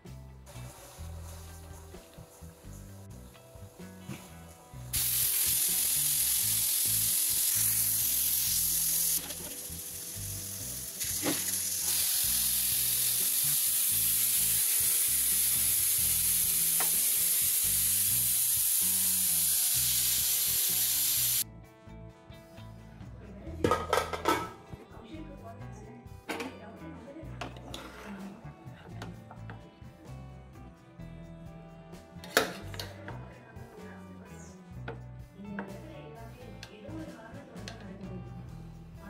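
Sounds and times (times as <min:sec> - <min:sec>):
food sizzling in hot oil: 0:00.4 - 0:02.9, 0:04.9 - 0:21.4.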